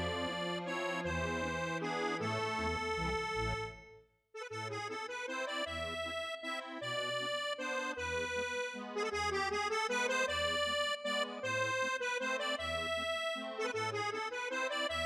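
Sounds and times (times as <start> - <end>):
bass line: 0.0 - 3.9
keyboard melody: 0.0 - 15.0.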